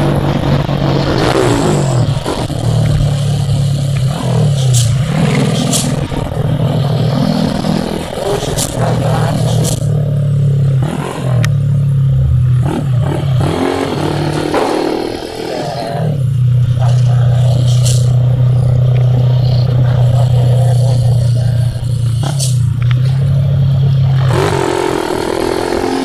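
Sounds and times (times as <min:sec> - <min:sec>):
motorcycle engine revving: 0:00.0 - 0:26.0
sharp clicks: 0:01.1 - 0:10.0, 0:16.7 - 0:23.3.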